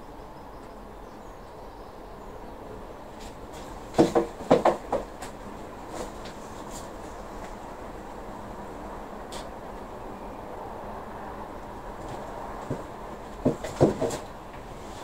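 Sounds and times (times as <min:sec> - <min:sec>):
faint background noise: 0:00.0 - 0:15.0
knocks and rattles: 0:03.6 - 0:06.4, 0:12.0 - 0:14.3.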